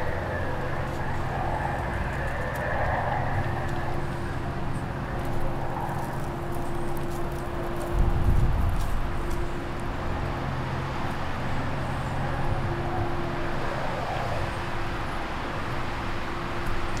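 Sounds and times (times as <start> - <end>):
outdoor rumble with low hum: 0.0 - 17.0.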